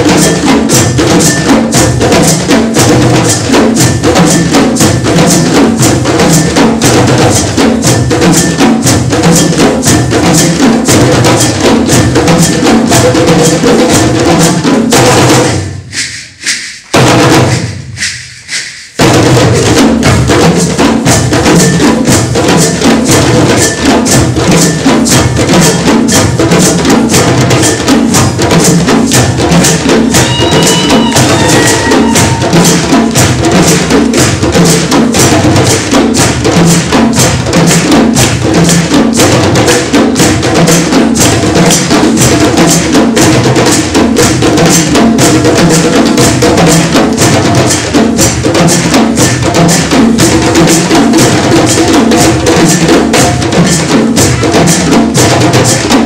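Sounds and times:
drum ensemble playing: 0.0 - 56.0
loud drum stroke: 13.9 - 22.5, 23.1 - 42.4.

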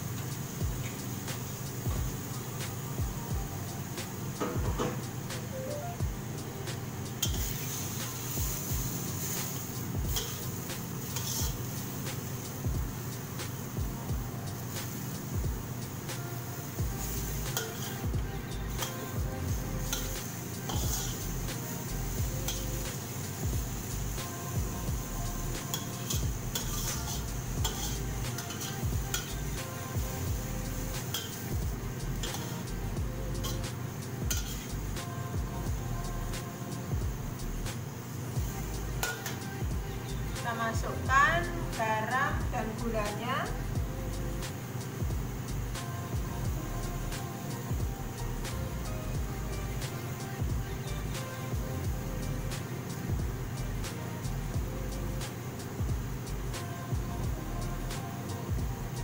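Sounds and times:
light sizzle: 0.0 - 59.0
spatula scraping a wok: 7.2 - 13.8, 15.9 - 34.9, 38.4 - 40.4.

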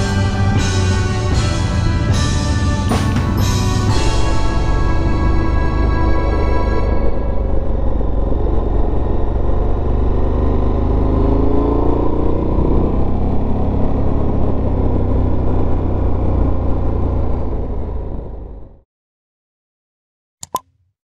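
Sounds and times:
motorcycle engine rumbling: 0.0 - 18.8.

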